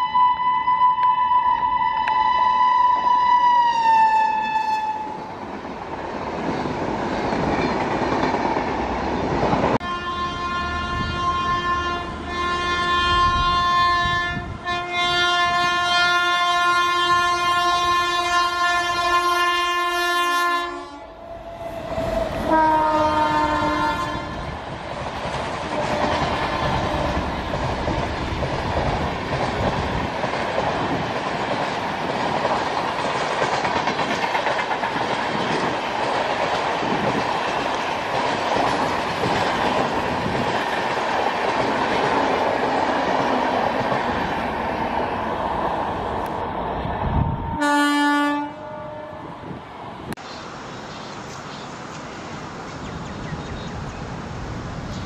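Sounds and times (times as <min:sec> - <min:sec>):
locomotive horn blasts: 0:00.0 - 0:05.2, 0:09.8 - 0:24.5, 0:25.7 - 0:27.3, 0:47.5 - 0:49.3
train coaches rumbling past: 0:00.0 - 0:55.0.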